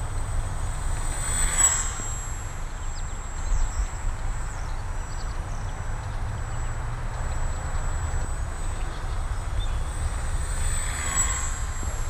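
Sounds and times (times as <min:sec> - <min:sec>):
electric model plane whine: 0:00.0 - 0:12.0
faint bird chirps: 0:06.5 - 0:11.7.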